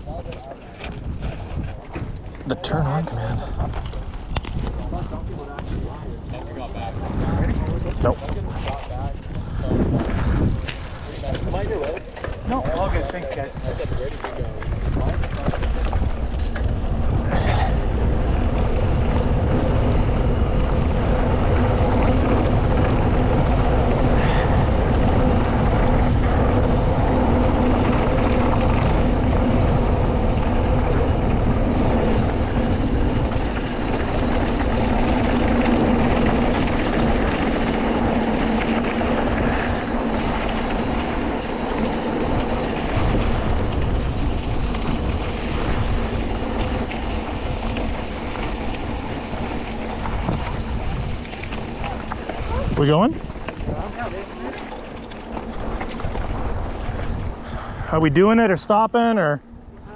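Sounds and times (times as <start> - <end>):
bike tyres rumbling over gravel: 0.0 - 59.9
wind buffeting microphone: 0.0 - 59.9
steady hum: 15.5 - 59.9.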